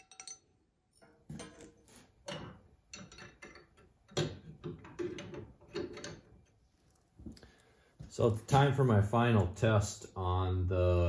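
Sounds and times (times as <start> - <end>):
metal parts knocking and clicking: 0.0 - 7.1.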